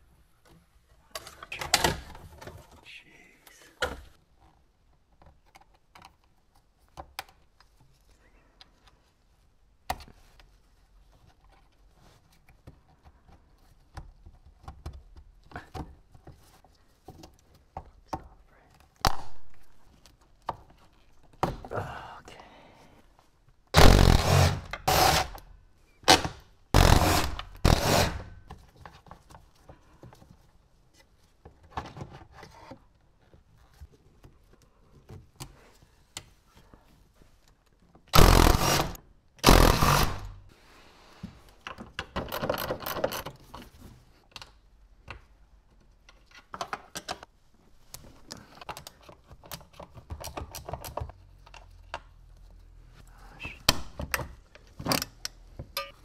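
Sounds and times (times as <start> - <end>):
loud sudden tool bursts: 23.8 - 25.4, 26.8 - 28.3, 38.2 - 40.4.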